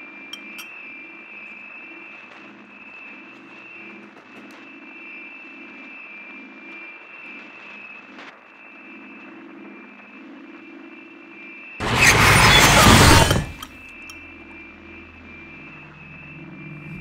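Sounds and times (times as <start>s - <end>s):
high electronic whine: 11.8s - 17.0s
low buzzing hum: 11.8s - 17.0s.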